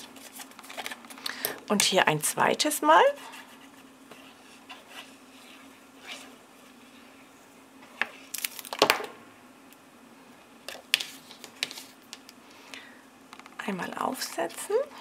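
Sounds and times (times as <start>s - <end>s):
paper rustling: 0.0s - 1.2s, 10.7s - 12.0s
faint steady hum: 0.0s - 15.0s.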